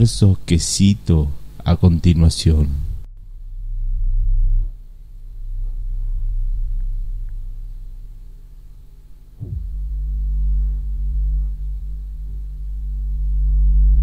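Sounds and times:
deep rumbling drone: 0:02.6 - 0:14.0
falling swoosh: 0:09.4 - 0:13.1.

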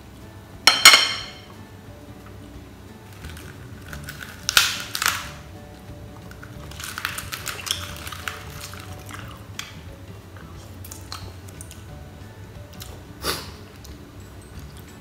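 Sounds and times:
person chewing crunchy food: 0:03.1 - 0:05.4, 0:06.2 - 0:09.6, 0:10.6 - 0:11.9.

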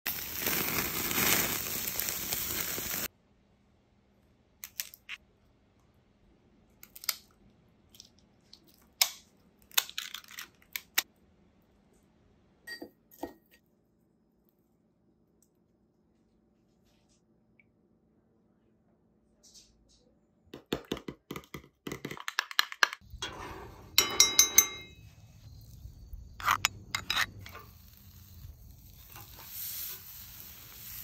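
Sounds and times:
food sizzling over charcoal: 0:00.1 - 0:03.1, 0:25.1 - 0:31.0.

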